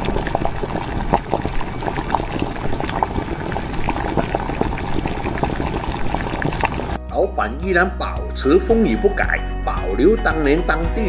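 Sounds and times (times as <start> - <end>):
soup bubbling and gurgling: 0.0 - 7.1.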